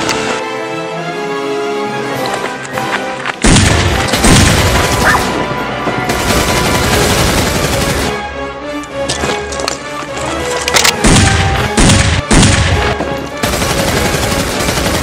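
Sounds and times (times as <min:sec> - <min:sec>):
background music: 0:00.0 - 0:15.0
rapid gunfire: 0:03.4 - 0:05.4, 0:06.1 - 0:08.2, 0:11.0 - 0:15.0.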